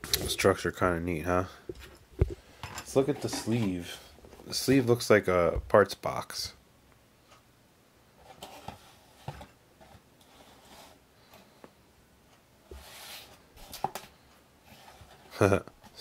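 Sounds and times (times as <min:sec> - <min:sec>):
cardboard rustling and scraping: 0:03.0 - 0:04.6, 0:08.2 - 0:11.0, 0:12.7 - 0:16.0.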